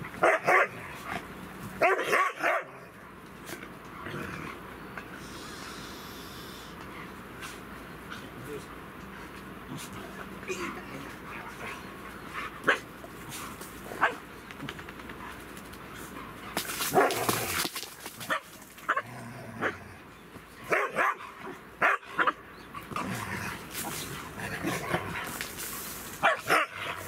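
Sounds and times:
dogs barking and yipping: 0.0 - 2.8, 10.6 - 19.8, 20.6 - 23.0, 26.1 - 27.0.

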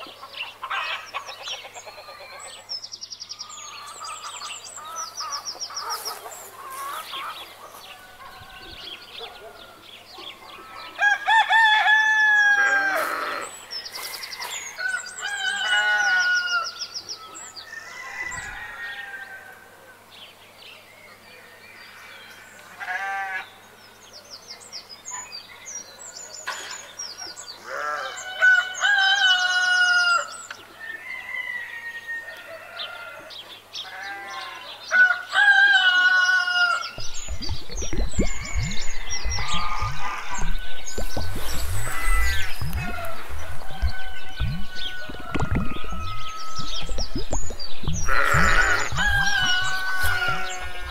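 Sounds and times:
roosters crowing: 10.8 - 13.5, 14.8 - 16.8, 17.7 - 19.7, 27.6 - 37.1, 38.4 - 47.2, 47.9 - 50.9.

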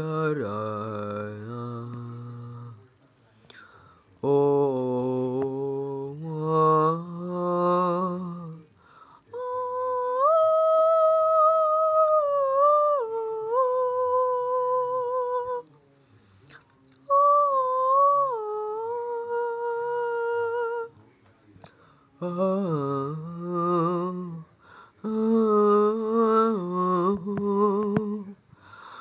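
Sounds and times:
boy singing operatically: 9.4 - 15.7.

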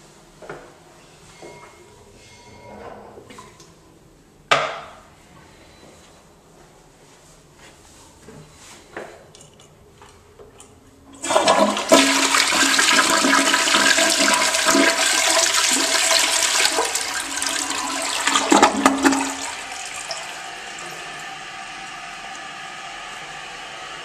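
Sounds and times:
toilet flushing: 11.1 - 24.0
toilet tank refilling: 11.1 - 24.0.

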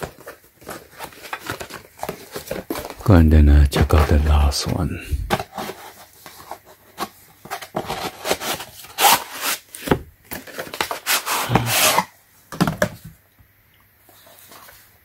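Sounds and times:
cardboard boxes scraping and knocking: 3.8 - 12.1
plastic case sliding in cardboard: 10.8 - 12.1.

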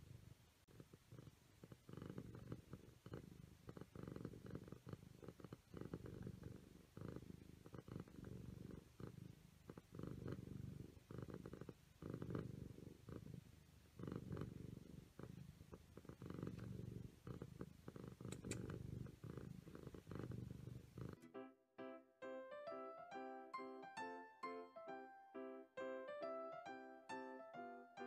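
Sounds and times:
cat purring: 0.0 - 21.2.

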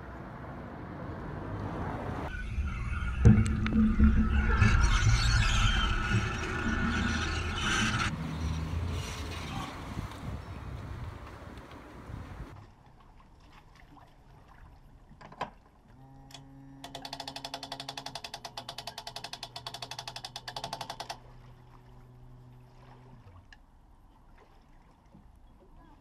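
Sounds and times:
winch ratchet clicking: 16.8 - 21.2
low steady hum: 21.2 - 26.0.

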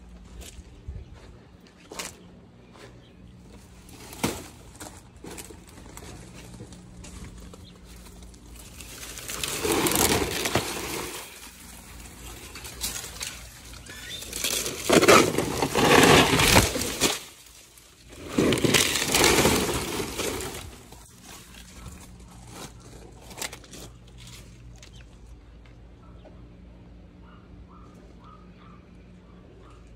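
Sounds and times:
mini chainsaw cutting fronds: 8.6 - 21.8.

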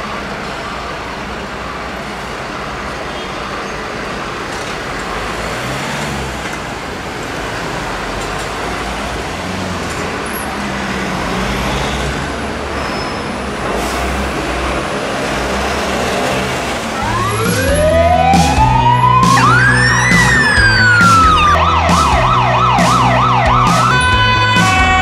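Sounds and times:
road traffic engine rumble: 0.0 - 25.0
emergency siren wailing: 16.8 - 25.0.

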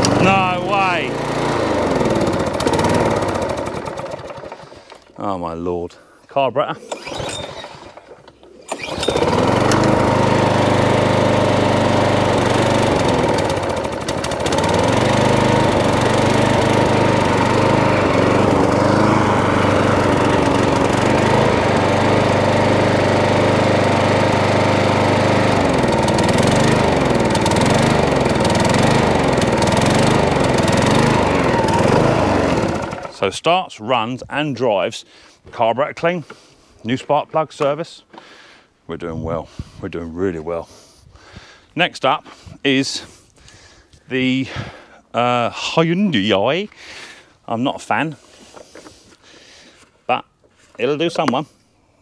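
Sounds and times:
lawn mower engine running: 0.0 - 5.1, 6.8 - 33.3.

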